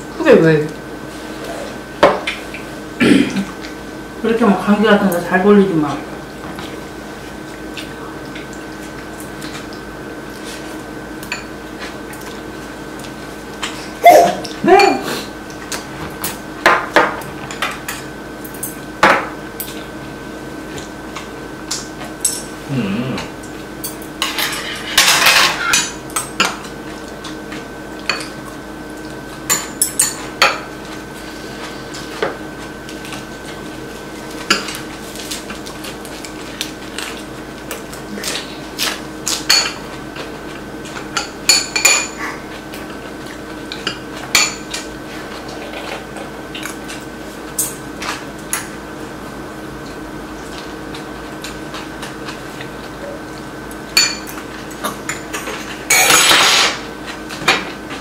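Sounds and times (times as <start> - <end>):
utensils clinking on ceramic bowls: 41.2 - 42.2, 54.0 - 56.8.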